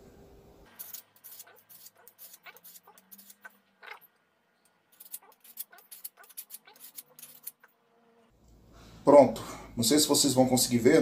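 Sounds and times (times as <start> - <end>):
hand file scraping metal blade: 0.7 - 4.0, 5.0 - 7.8.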